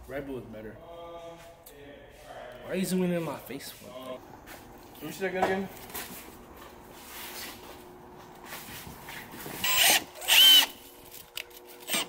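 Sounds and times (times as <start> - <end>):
cordless drill whining: 9.5 - 12.0.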